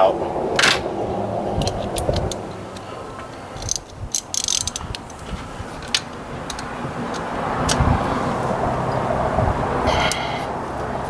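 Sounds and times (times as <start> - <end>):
ratchet metal clicks: 3.6 - 5.2, 5.8 - 7.8
ratchet rattling burst: 3.6 - 5.2.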